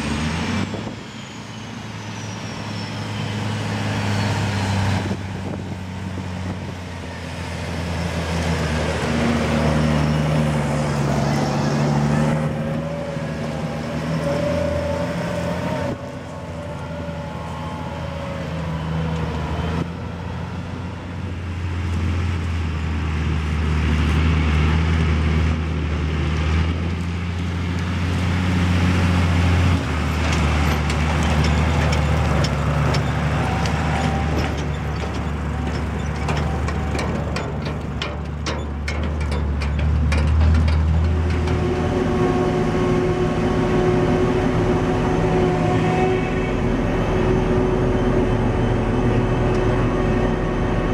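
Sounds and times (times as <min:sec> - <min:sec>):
tractor diesel engines droning: 0:00.0 - 0:50.9
sharp clicks or rattles: 0:34.4 - 0:41.5.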